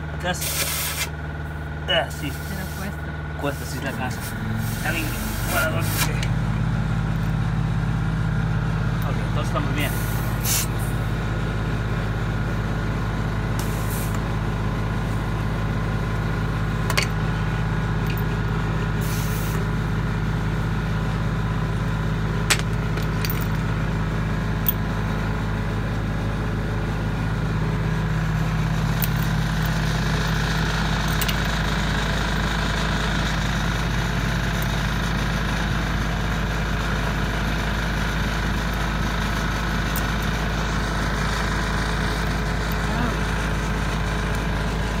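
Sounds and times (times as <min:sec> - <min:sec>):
engine droning: 0:00.0 - 0:45.0
air hissing into tire: 0:00.4 - 0:01.1, 0:02.1 - 0:06.2, 0:09.9 - 0:11.0, 0:13.6 - 0:14.2, 0:19.0 - 0:19.6.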